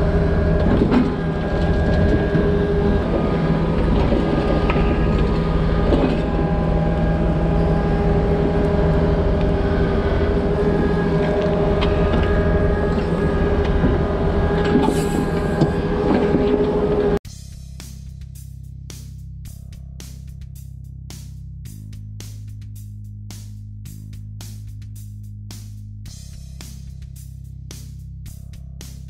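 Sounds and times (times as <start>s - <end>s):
excavator engine and hydraulics: 0.0s - 17.2s.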